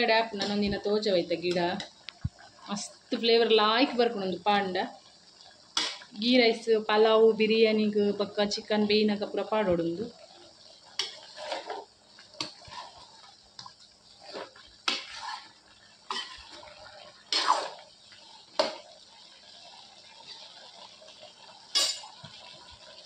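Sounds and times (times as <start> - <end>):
gravy simmering: 0.0 - 23.0
spatula scraping a pan: 10.3 - 18.8.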